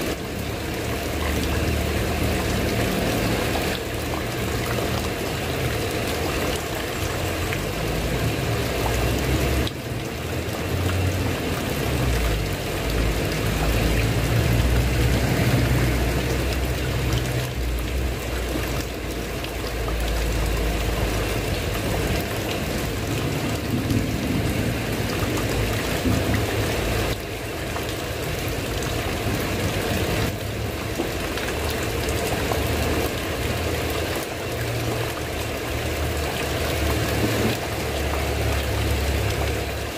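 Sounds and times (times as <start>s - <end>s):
rain on a tiled roof: 0.0s - 39.9s
water trickling off roof edge: 0.0s - 39.9s.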